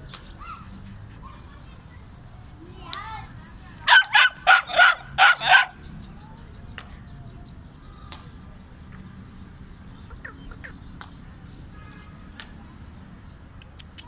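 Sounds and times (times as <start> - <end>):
dog barking sharply: 3.9 - 5.8.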